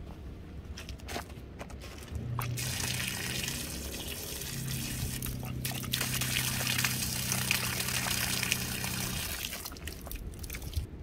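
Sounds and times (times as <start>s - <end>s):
pump motor humming: 2.4s - 10.8s
water splashing onto gravel: 2.4s - 10.9s.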